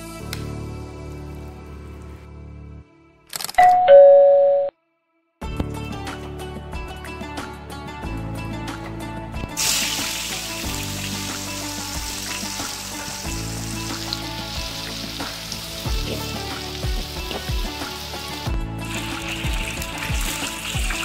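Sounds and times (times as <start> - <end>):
shallots sizzling in hot oil: 9.6 - 21.0.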